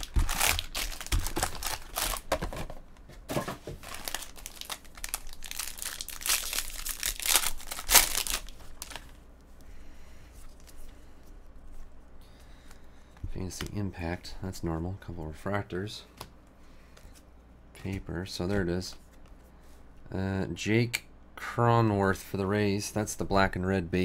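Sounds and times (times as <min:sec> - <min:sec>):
foil wrapper crinkling and tearing: 0:00.0 - 0:02.6, 0:03.8 - 0:09.1
cards rustling: 0:00.0 - 0:02.8, 0:03.4 - 0:09.2.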